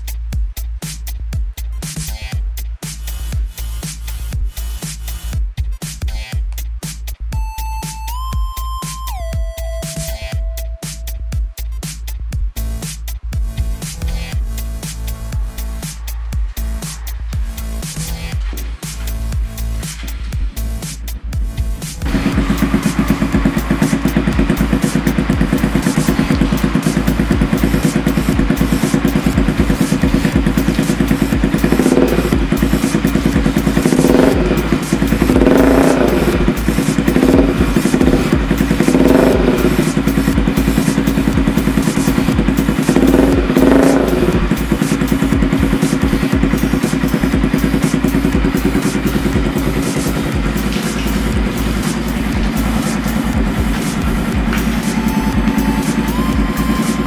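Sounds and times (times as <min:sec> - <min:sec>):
motorcycle engine idling: 0:07.9 - 0:57.0
motorcycle throttle blips: 0:22.0 - 0:57.0.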